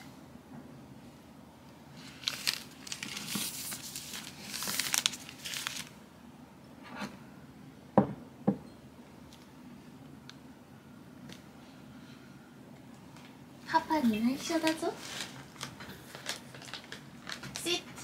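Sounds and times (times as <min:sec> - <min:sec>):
tea bag sachet crinkling: 0:02.0 - 0:06.0, 0:14.4 - 0:17.8
teacup knocking on wooden table: 0:08.0 - 0:08.7.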